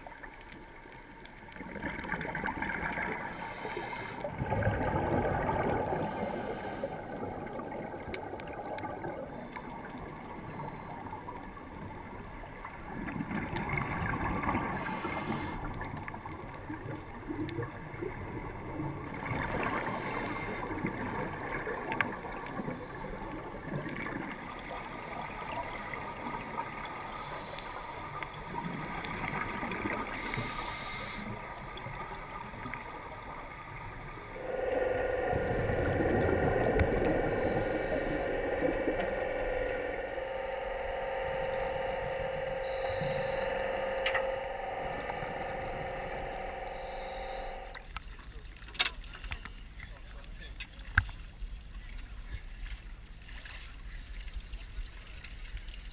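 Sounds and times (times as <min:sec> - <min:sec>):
muffled underwater rushing: 0:00.0 - 0:55.9
diver exhaling regulator bubbles: 0:01.6 - 0:09.2, 0:34.3 - 0:47.8.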